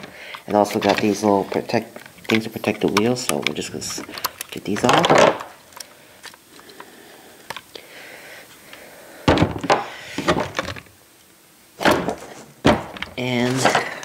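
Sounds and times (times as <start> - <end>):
plastic crackling and rustling: 0.0 - 7.8, 9.3 - 11.0, 11.8 - 14.0
plastic packaging clicks: 0.0 - 7.8.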